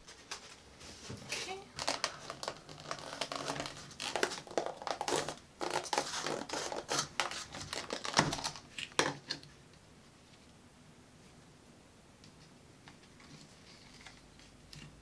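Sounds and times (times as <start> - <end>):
paper and plastic cup crinkling: 0.0 - 9.4, 13.0 - 15.0.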